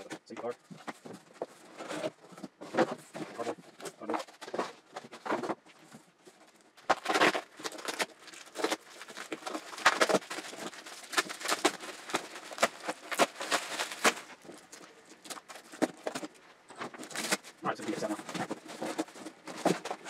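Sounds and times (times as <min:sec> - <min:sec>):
scrapes against cardboard box: 0:00.0 - 0:05.8
bubble wrap crinkling: 0:00.7 - 0:20.0.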